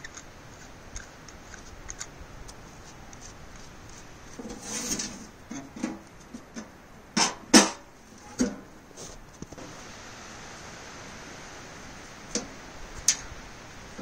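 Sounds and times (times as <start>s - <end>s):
metal scraping: 4.3s - 6.0s.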